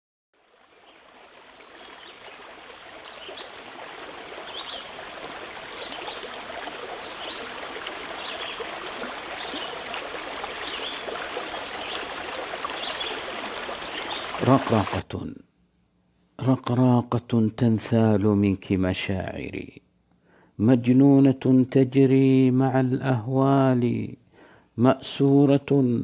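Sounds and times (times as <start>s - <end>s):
stream water running: 0.4s - 15.0s.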